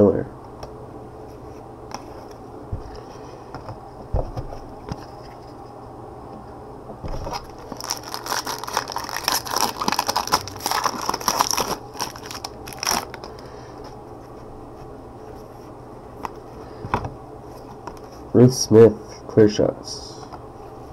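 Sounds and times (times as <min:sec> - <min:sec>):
steady low hum: 0:00.0 - 0:20.9
cards rustling in gloved hands: 0:07.1 - 0:14.4.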